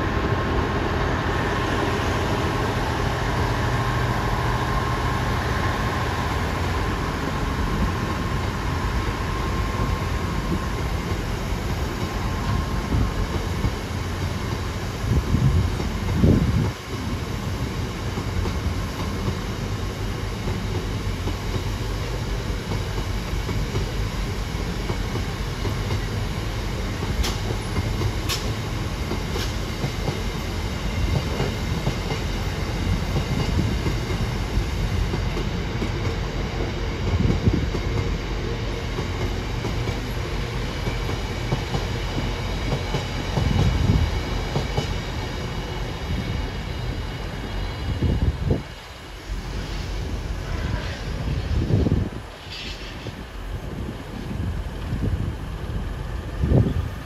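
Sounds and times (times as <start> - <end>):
freight train wheels rumbling: 0.0 - 57.0
clickety-clack over rail joints: 9.7 - 17.2, 18.0 - 48.9, 49.6 - 55.7.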